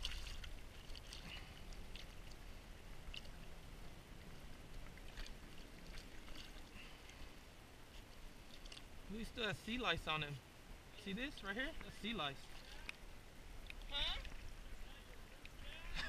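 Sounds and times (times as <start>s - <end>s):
small sharp splashes: 0.0s - 2.4s
shallow water lapping: 0.0s - 16.0s.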